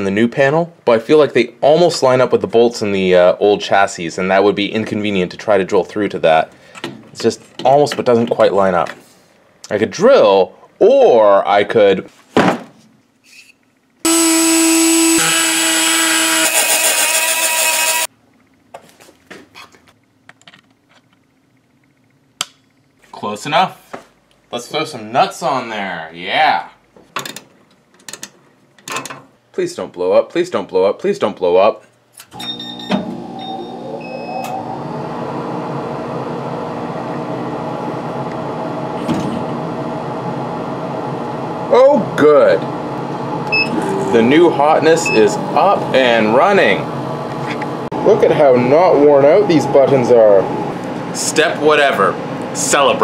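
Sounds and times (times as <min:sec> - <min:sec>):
rotary tool cutting wheel whine: 0:14.1 - 0:18.1
laser cutter fans humming: 0:32.6 - 0:53.0
short high beeps: 0:43.5 - 0:43.9.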